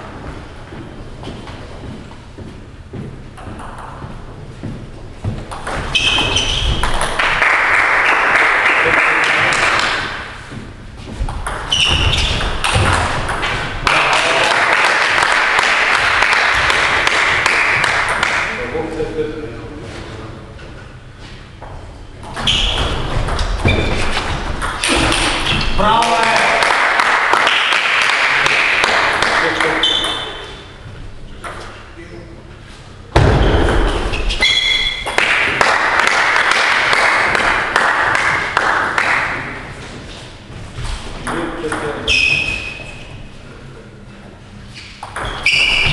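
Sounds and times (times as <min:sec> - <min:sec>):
table tennis play: 0:03.0 - 0:18.7, 0:21.6 - 0:30.8, 0:31.4 - 0:32.0, 0:33.1 - 0:40.2, 0:41.0 - 0:43.1, 0:44.8 - 0:45.9
audience applause: 0:07.1 - 0:10.0, 0:13.8 - 0:18.3, 0:26.0 - 0:29.8, 0:35.2 - 0:39.4
loud thump: 0:33.1 - 0:34.1.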